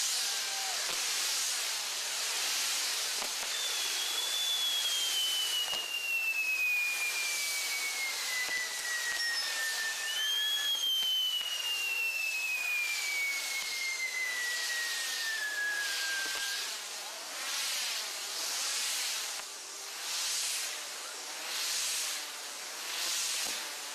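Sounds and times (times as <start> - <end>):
high whistles falling in pitch: 0.0 - 1.0, 3.2 - 16.9
firework pinwheels hissing: 0.0 - 23.9.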